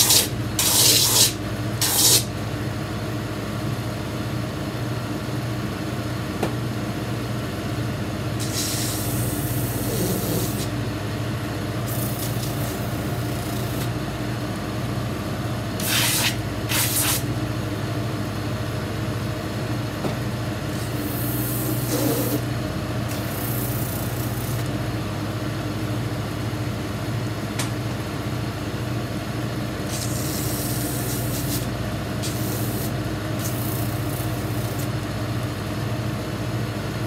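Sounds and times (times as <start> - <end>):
leather hissing against sanding wheel: 0.0 - 2.3, 8.4 - 10.7, 15.8 - 17.2, 29.9 - 34.9.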